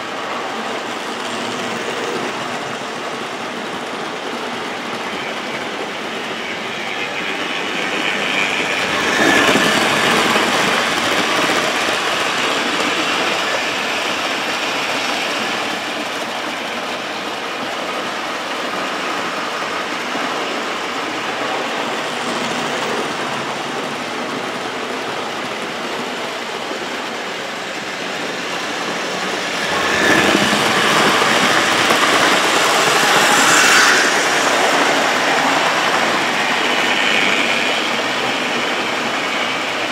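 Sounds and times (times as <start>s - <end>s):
model train running on track: 0.0s - 39.9s.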